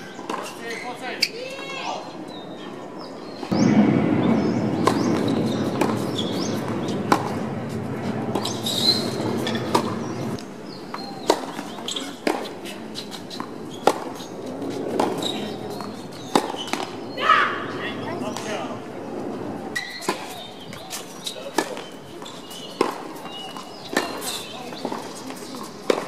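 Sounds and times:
low rushing noise: 3.5s - 10.7s
racket hitting tennis ball: 4.3s - 17.0s, 19.8s - 26.0s.

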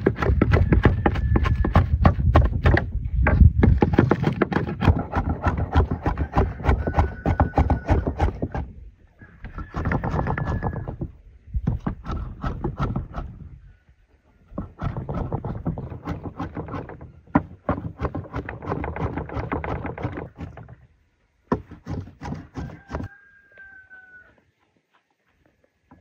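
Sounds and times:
cleaver chopping meat on wood: 0.0s - 2.8s, 3.6s - 8.6s.

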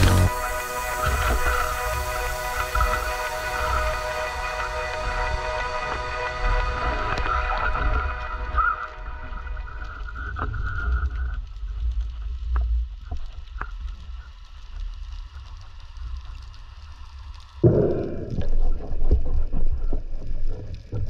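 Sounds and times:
loud water rushing: 0.0s - 8.9s
underwater rumble of moving water: 0.0s - 21.0s.

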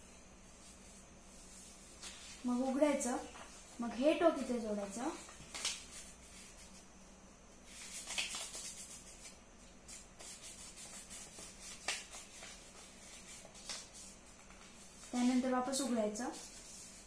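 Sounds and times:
paper rustling and crinkling: 5.1s - 6.6s, 10.2s - 17.0s.

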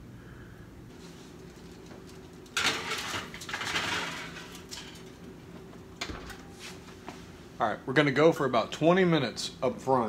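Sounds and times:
baking sheet scraping wire rack: 2.6s - 5.1s.

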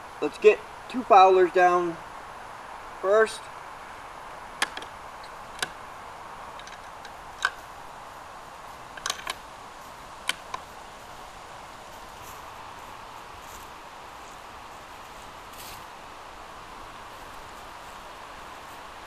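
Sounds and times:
rifle and cartridges clicking: 9.0s - 9.4s.

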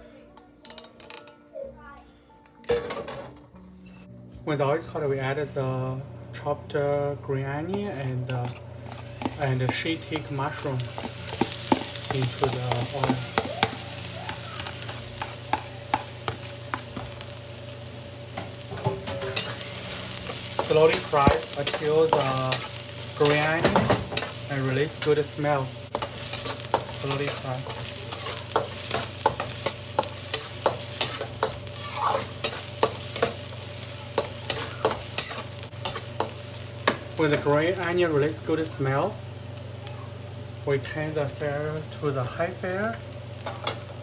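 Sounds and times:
metal spatula scraping wok: 7.7s - 9.7s, 10.6s - 13.7s, 18.7s - 37.8s, 43.4s - 43.9s
vegetables sizzling in hot oil: 10.4s - 44.0s.

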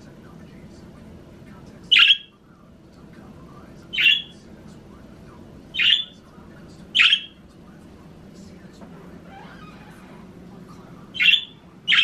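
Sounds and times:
budgerigar harsh calls: 1.9s - 2.3s, 3.9s - 4.3s, 5.7s - 6.2s, 6.9s - 7.4s, 11.1s - 12.0s.

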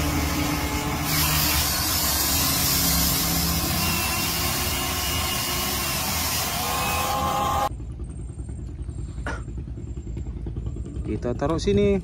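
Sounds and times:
hiss: 0.0s - 7.7s
toy excavator motor whirring: 1.0s - 7.7s
low hum: 1.7s - 12.0s.

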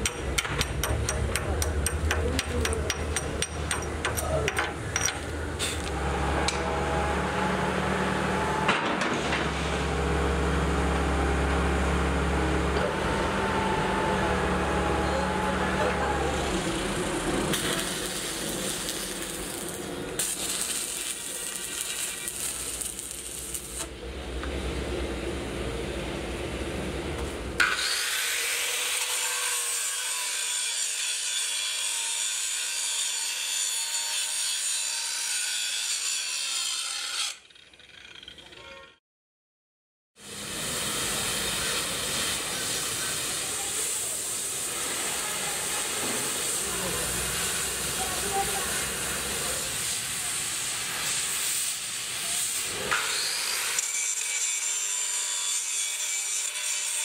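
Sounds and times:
arc welding crackling hiss: 16.6s - 24.0s, 40.2s - 53.0s.

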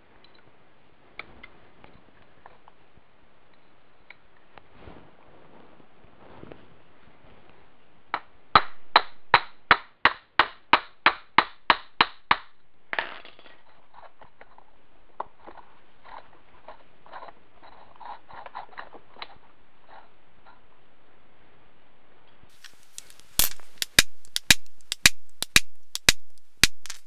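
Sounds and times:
hammer striking steel pin: 22.6s - 27.0s.

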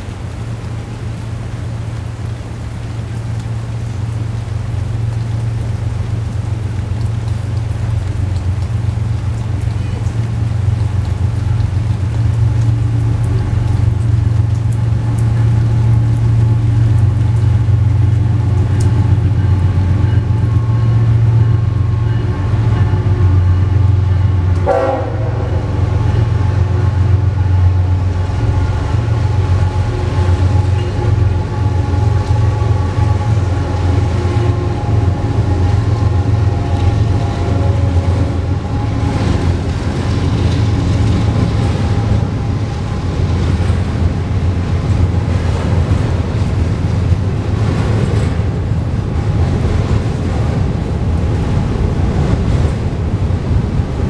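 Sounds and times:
diesel locomotive drone: 0.0s - 54.0s
train horn: 18.4s - 44.0s.

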